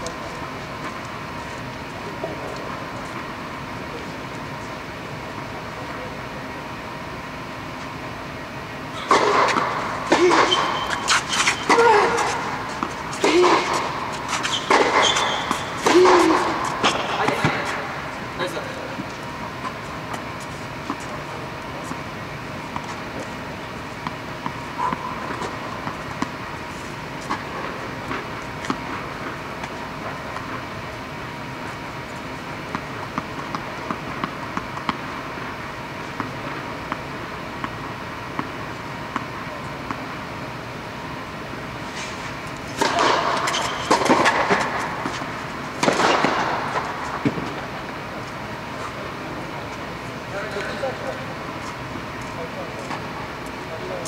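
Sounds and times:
air-handling noise: 0.0s - 54.0s
faint steady hum: 0.0s - 54.0s
racket hitting ball: 9.0s - 17.8s, 42.7s - 47.7s
tennis balls bouncing and struck: 9.0s - 18.2s, 18.9s - 40.3s, 42.5s - 49.0s.

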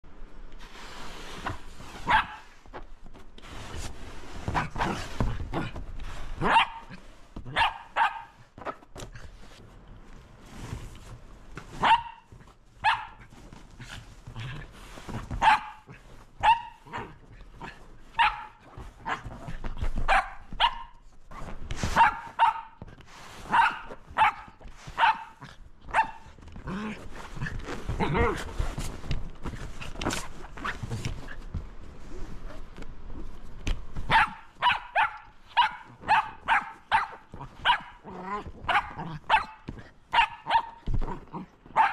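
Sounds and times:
rustling: 0.5s - 41.9s
dog barking excitedly: 2.0s - 2.5s, 6.4s - 8.5s, 11.8s - 13.3s, 15.4s - 21.0s, 22.0s - 22.8s, 23.4s - 26.3s, 34.1s - 41.9s.

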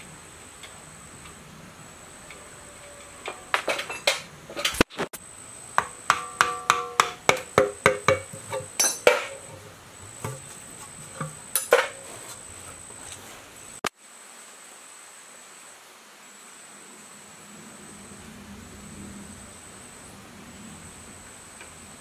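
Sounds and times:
metallic knocks and clinks: 2.3s - 4.7s, 5.8s - 9.6s, 11.2s - 12.0s.

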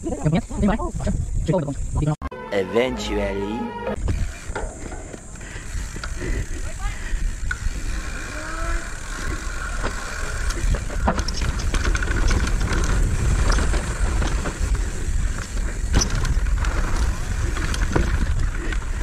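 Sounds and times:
wind rumble on microphone: 0.0s - 2.2s, 4.0s - 19.0s
bike rattling: 4.0s - 19.0s
bike tyre noise: 4.0s - 19.0s
sharp clacks over bumps: 9.2s - 19.0s.

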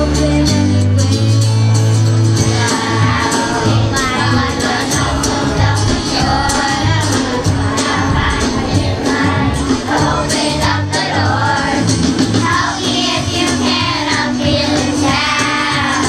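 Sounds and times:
steady bass line and beat: 2.4s - 13.2s
children's choir singing: 2.4s - 16.0s.

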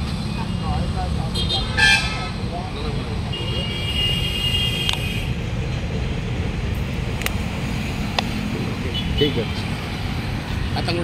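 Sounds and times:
motorcycle horn: 1.4s - 2.3s, 3.3s - 5.3s
sharp clicks: 7.1s - 7.4s.

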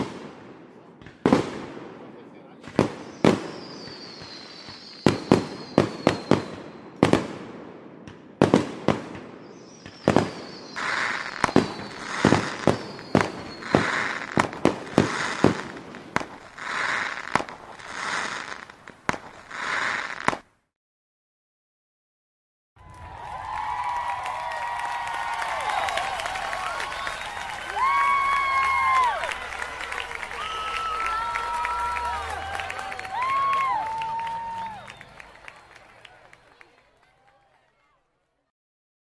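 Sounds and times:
firework bangs: 0.0s - 20.5s
crackling firework bursts: 0.0s - 20.6s, 22.8s - 36.6s
firework whistles: 2.7s - 7.2s, 9.4s - 20.4s, 25.5s - 35.4s.

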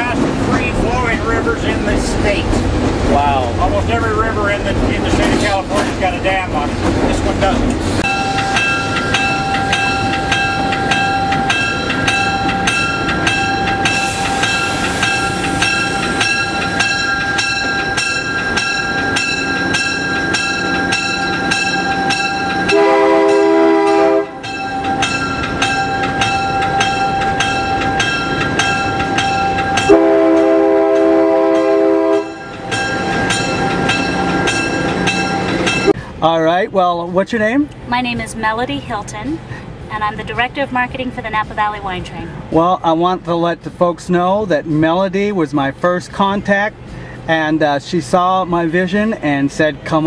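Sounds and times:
locomotive engine running: 0.0s - 47.5s
locomotive bell ringing: 3.2s - 36.1s
locomotive air horn blasts: 22.6s - 24.4s, 29.9s - 32.4s.

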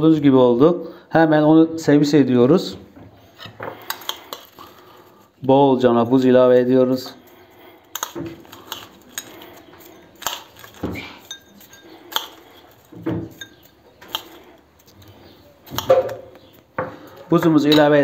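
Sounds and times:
metal spoon clinking on glass: 8.0s - 15.0s, 17.1s - 18.0s.

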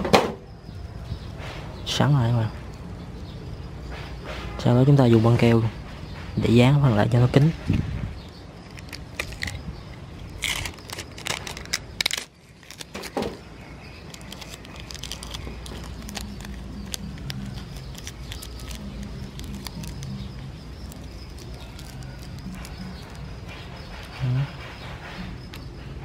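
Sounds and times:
adhesive tape crackling: 8.6s - 24.6s
paper handling: 10.2s - 24.2s.

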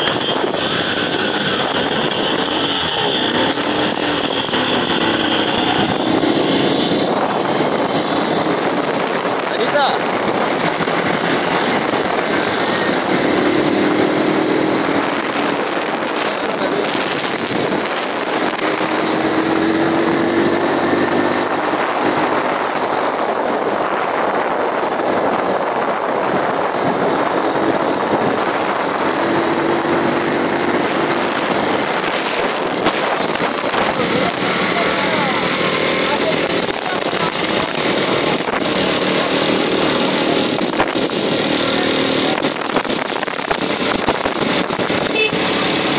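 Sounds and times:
motorcycle engine: 0.0s - 45.9s
road noise: 0.0s - 45.9s
wind on microphone: 0.0s - 45.9s.

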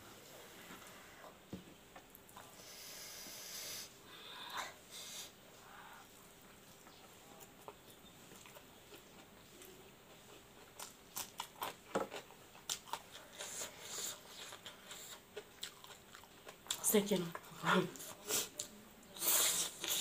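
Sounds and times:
crunchy biting and chewing: 7.6s - 16.8s.

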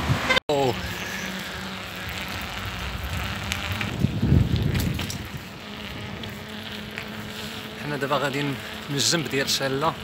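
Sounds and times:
road and tyre noise: 0.0s - 9.8s
wind buffeting microphone: 1.9s - 7.5s.

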